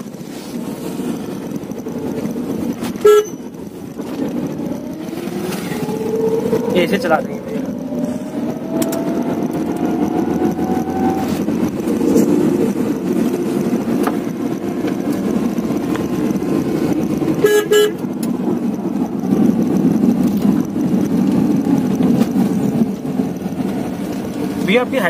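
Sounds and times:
car engine and road noise: 0:00.0 - 0:25.0
car horn toot: 0:02.9 - 0:03.5, 0:17.4 - 0:18.0.

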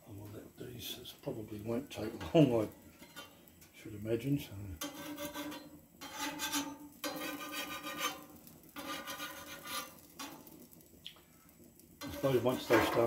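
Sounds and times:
spatula scraping metal griddle: 0:02.1 - 0:03.4, 0:04.8 - 0:10.8, 0:12.0 - 0:13.0.

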